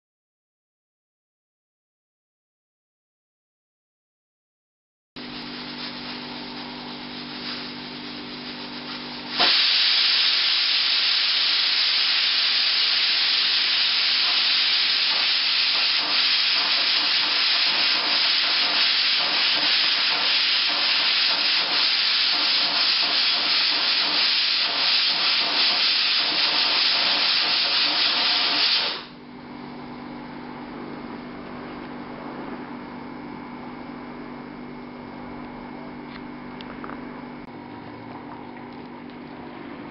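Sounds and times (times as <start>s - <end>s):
pressure cooker venting steam: 5.2s - 29.2s.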